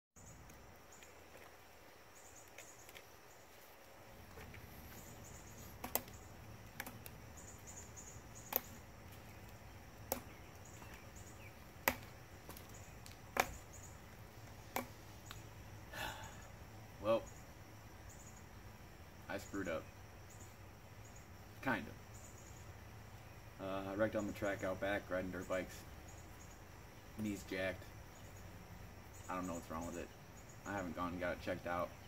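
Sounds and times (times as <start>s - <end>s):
insects chirping: 0.2s - 32.0s
crutches tapping on concrete: 5.5s - 7.2s, 8.4s - 13.8s, 14.4s - 15.4s.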